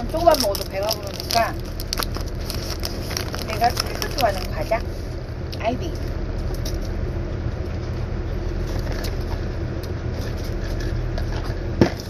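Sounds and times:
cracker being chewed: 0:00.0 - 0:04.7, 0:07.6 - 0:12.0
low engine rumble: 0:00.0 - 0:12.0.

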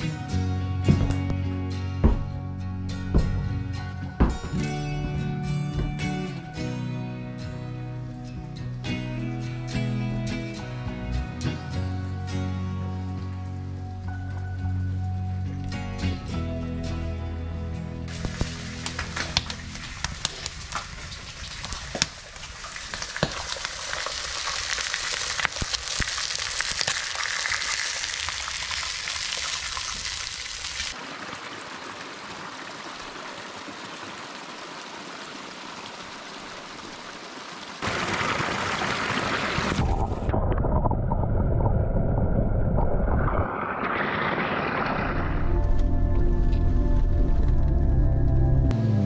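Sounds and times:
wood fire crackling and popping: 0:18.1 - 0:31.0
creek trickling: 0:18.1 - 0:40.4
muffled underwater water rush: 0:27.2 - 0:47.6.

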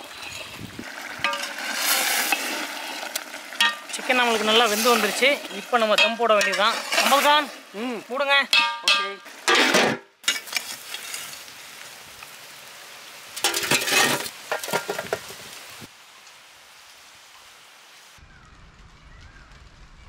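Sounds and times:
coals scraping on metal lid: 0:00.0 - 0:11.5, 0:13.4 - 0:15.2
embers crackling and hissing: 0:00.0 - 0:20.0
metal lid clanging on pot: 0:03.6 - 0:04.0, 0:06.0 - 0:06.6, 0:08.5 - 0:10.5.

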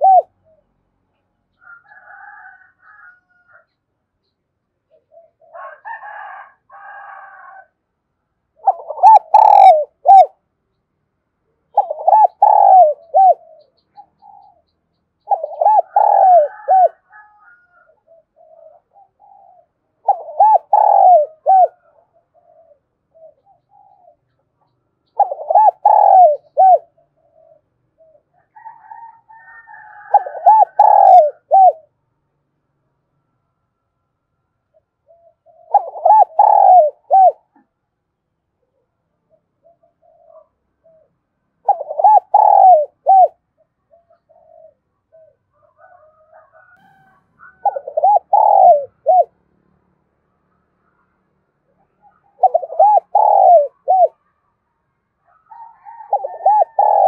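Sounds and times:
dove cooing: 0:00.0 - 0:00.8, 0:04.9 - 0:07.8, 0:08.5 - 0:10.4, 0:11.7 - 0:32.0, 0:34.7 - 0:37.7, 0:38.6 - 0:49.4, 0:51.7 - 0:54.3, 0:55.2 - 0:57.0.

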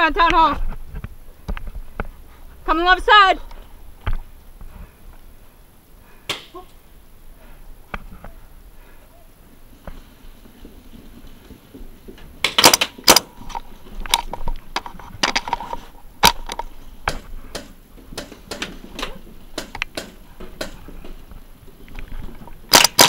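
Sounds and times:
paintball markers firing: 0:12.4 - 0:13.3, 0:22.7 - 0:23.0.

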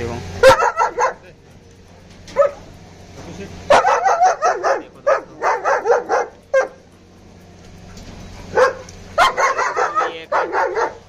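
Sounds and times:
dogs barking: 0:00.4 - 0:11.0.

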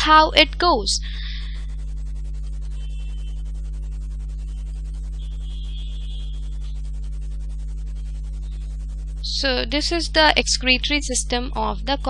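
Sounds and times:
low electrical hum: 0:00.0 - 0:12.0.

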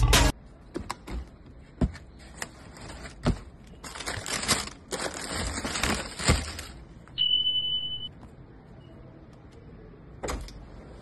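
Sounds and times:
tissue paper rustling: 0:02.2 - 0:06.8.

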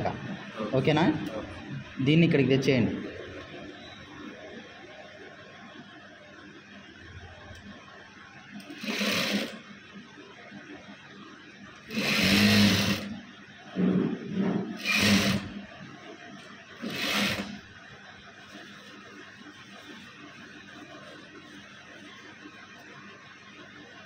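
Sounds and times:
sewing machine stitching: 0:08.6 - 0:09.6, 0:11.9 - 0:13.2, 0:14.8 - 0:15.6, 0:16.8 - 0:17.6.

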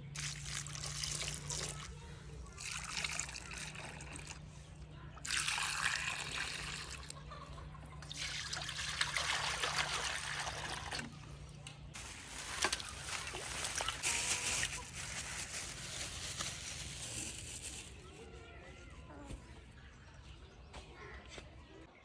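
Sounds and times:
fish splashing into bowl of water: 0:05.2 - 0:07.1, 0:08.0 - 0:11.2
hens clucking softly: 0:06.8 - 0:08.1
plastic bag crinkling: 0:12.0 - 0:18.0.

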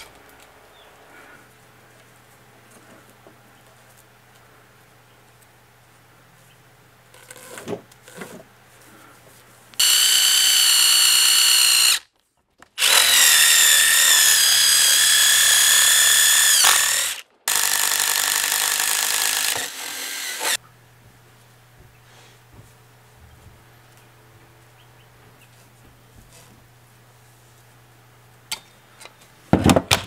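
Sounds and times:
drill whining into wood: 0:09.8 - 0:12.1, 0:12.8 - 0:20.6.

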